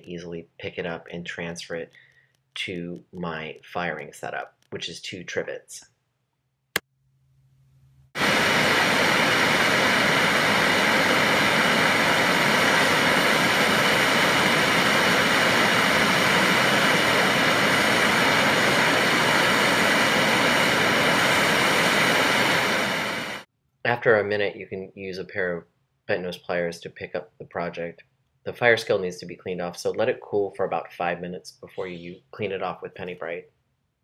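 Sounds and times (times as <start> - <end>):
gas torch flame hissing: 8.2 - 23.5.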